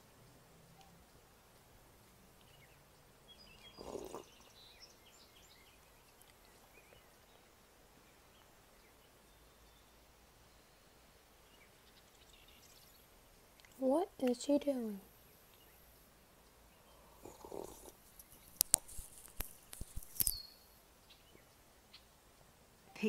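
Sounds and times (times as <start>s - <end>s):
faint background hiss: 0.0s - 23.0s
faint bird chirps: 2.4s - 13.8s, 19.5s - 22.2s.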